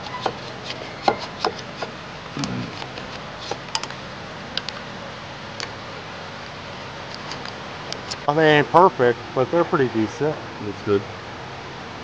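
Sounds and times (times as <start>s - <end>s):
tools clicking and tapping: 0.0s - 1.9s.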